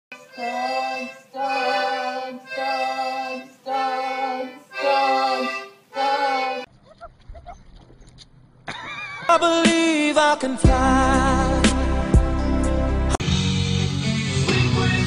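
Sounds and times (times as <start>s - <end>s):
toy accordion chords: 0.1s - 6.7s.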